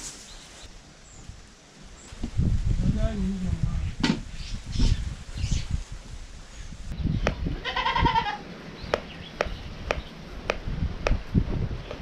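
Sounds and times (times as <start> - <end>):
goat bleating: 7.6 - 8.4.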